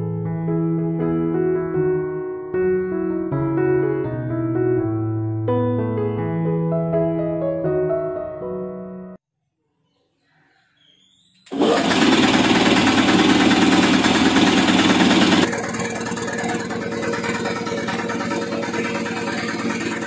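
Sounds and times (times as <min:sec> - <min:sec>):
air compressor pulsing: 0:11.5 - 0:20.0.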